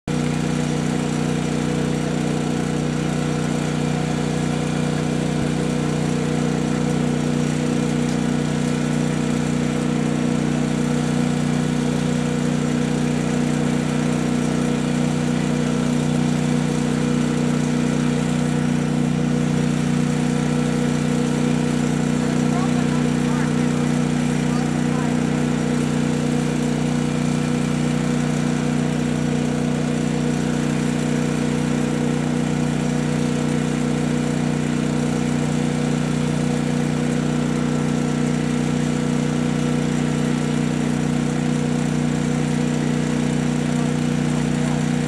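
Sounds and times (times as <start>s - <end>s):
generator and air compressor running: 0.0s - 45.0s.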